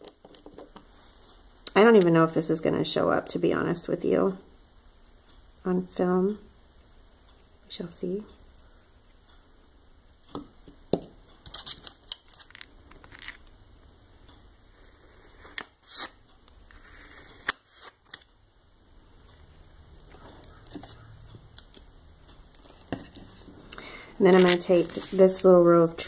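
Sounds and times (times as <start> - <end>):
small tools clicking and tapping: 0.0 - 0.9.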